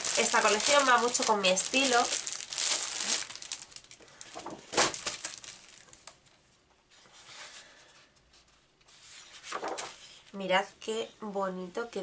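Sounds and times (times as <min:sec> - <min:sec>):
paper sheets rustling: 0:00.0 - 0:05.8, 0:08.9 - 0:10.2
plastic packaging crinkling: 0:00.0 - 0:06.3.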